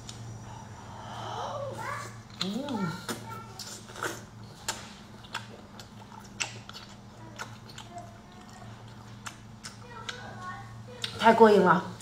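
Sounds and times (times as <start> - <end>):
faint steady hum: 0.0 - 12.0
person chewing with wet mouth clicks: 2.3 - 10.3.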